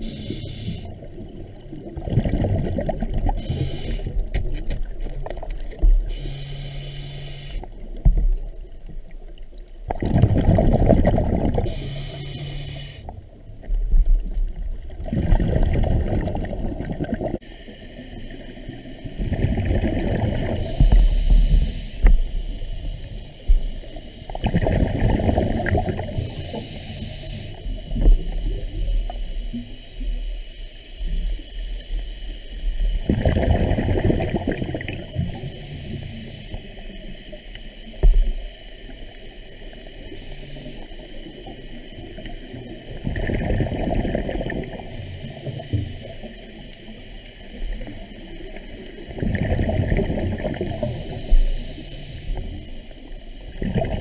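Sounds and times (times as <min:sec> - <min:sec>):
diver breathing through regulator: 0:00.0 - 0:01.2, 0:03.0 - 0:04.3, 0:06.0 - 0:07.8, 0:10.6 - 0:13.2, 0:20.1 - 0:27.9, 0:34.3 - 0:37.0, 0:50.6 - 0:52.8
exhale bubbling rush: 0:00.0 - 0:04.3, 0:09.9 - 0:13.0, 0:14.9 - 0:23.2, 0:24.2 - 0:28.9, 0:33.0 - 0:36.7, 0:41.5 - 0:46.4, 0:49.0 - 0:52.6, 0:53.4 - 0:54.0.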